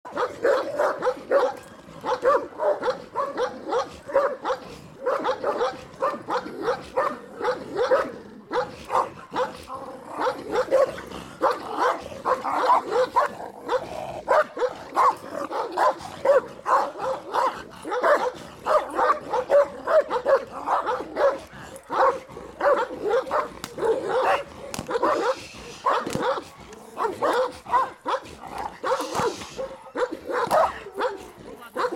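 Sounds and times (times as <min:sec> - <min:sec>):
dog barking aggressively: 0:00.1 - 0:31.9.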